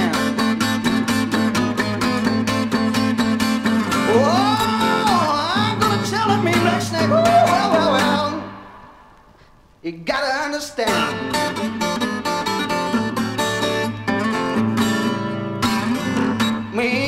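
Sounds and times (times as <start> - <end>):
bending electric guitar notes: 3.8 - 8.9.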